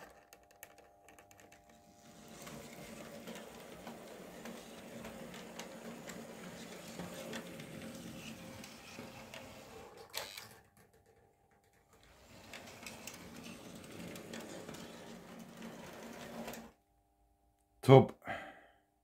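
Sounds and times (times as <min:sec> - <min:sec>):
model train motor hum: 0:01.8 - 0:10.5, 0:12.0 - 0:16.7.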